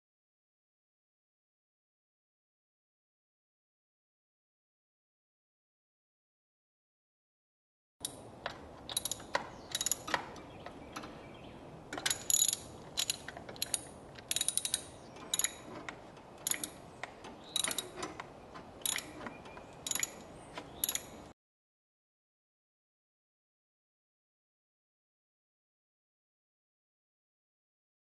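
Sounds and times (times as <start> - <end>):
ratchet wrench clicking: 8.9 - 10.2, 12.0 - 16.8, 17.4 - 18.1, 18.8 - 19.1, 19.8 - 20.2, 20.8 - 21.2.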